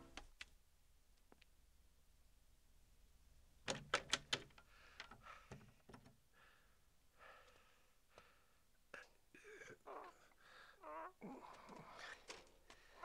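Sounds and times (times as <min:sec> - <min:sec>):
door latch clicks and knocks: 0:03.7 - 0:04.6.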